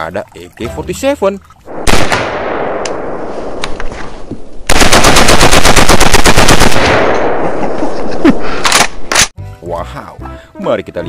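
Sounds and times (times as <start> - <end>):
gunshot echo: 1.7 - 4.0, 4.7 - 7.6
rifle automatic burst: 1.8 - 2.8, 4.7 - 7.6.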